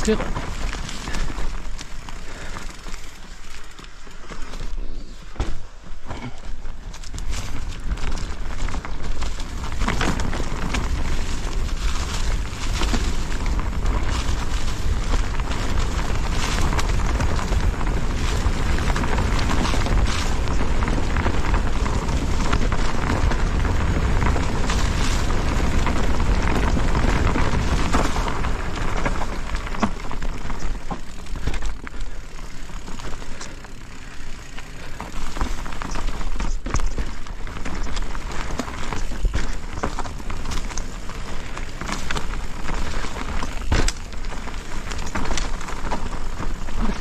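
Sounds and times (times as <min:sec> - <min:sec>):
bike knocking and rattling: 0:00.0 - 0:47.0
tyres on dirt: 0:00.0 - 0:47.0
wind buffeting microphone: 0:07.4 - 0:31.4.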